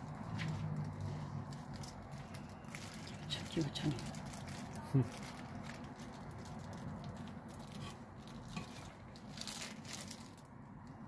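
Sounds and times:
plastic glove crinkling: 0:00.0 - 0:10.8.

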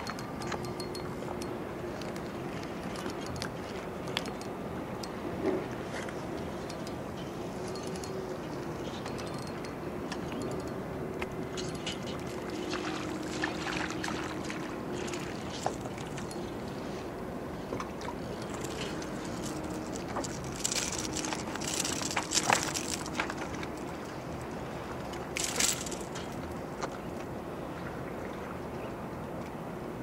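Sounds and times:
water: 0:00.0 - 0:30.0
wind: 0:00.0 - 0:30.0
sharp clicks and rattles: 0:18.4 - 0:23.6, 0:25.4 - 0:26.4.

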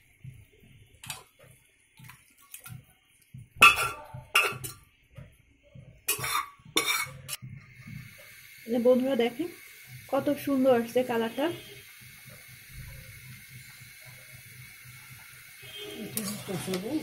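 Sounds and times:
metal spoon scraping pot: 0:06.1 - 0:07.4, 0:16.0 - 0:17.0.

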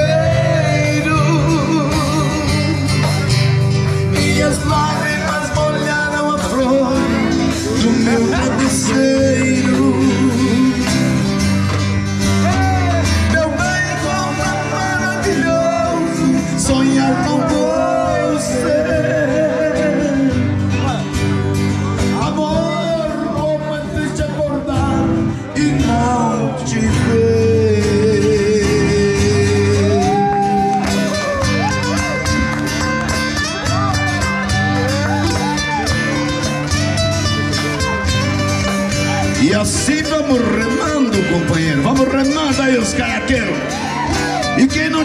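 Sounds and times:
man singing: 0:00.0 - 0:11.5, 0:12.3 - 0:21.2, 0:22.0 - 0:30.7, 0:39.1 - 0:45.0
country song with guitar: 0:00.0 - 0:45.0.

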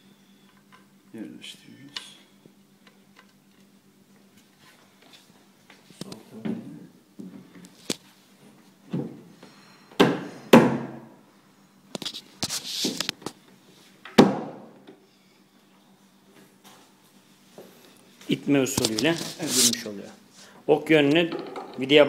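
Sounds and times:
shelf panel knocking into place: 0:14.2 - 0:14.7.

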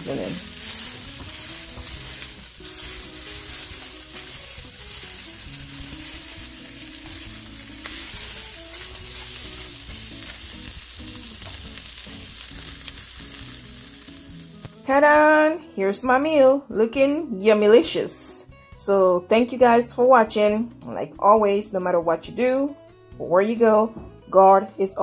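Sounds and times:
spatula stirring: 0:00.0 - 0:10.4
food sizzling in a skillet: 0:00.0 - 0:15.0.

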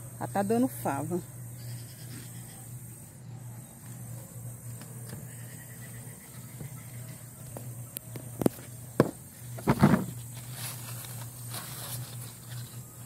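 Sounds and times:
steady low hum: 0:00.0 - 0:13.0
rustling scrape: 0:09.7 - 0:13.0.

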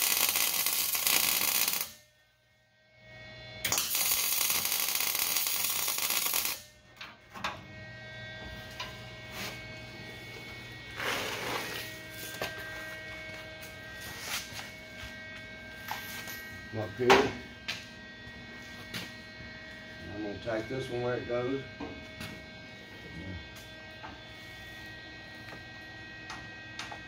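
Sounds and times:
arc crackle bursts: 0:00.0 - 0:02.0, 0:03.6 - 0:06.7
welder crackling sizzle: 0:00.0 - 0:02.0, 0:03.6 - 0:06.6, 0:08.6 - 0:12.8
low hum: 0:06.6 - 0:27.0.

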